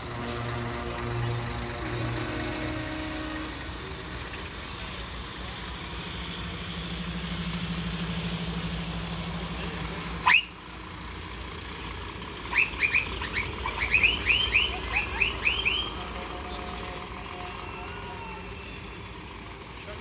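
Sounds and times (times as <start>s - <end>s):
lorries passing: 0.0s - 20.0s.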